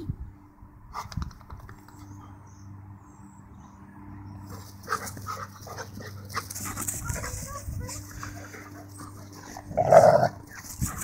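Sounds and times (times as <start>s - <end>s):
dogs snarling and yapping: 4.5s - 11.0s
dogs growling: 8.4s - 10.6s.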